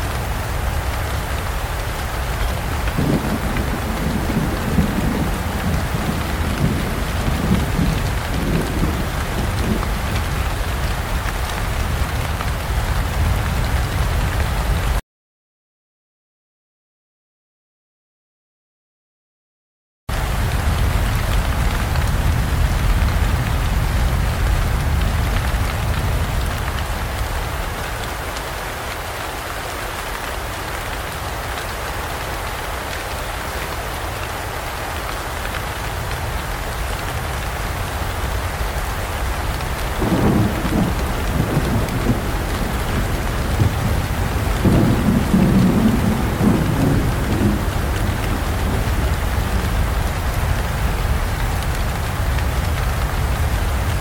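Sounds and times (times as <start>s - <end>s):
heavy rain: 0.0s - 15.0s, 20.1s - 54.0s
thunder rolling: 2.1s - 15.0s, 38.2s - 54.0s.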